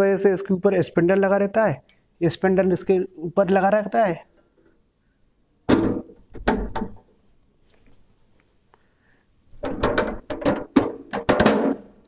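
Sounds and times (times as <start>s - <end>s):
sharp knocks: 5.7s - 7.0s, 9.6s - 11.8s.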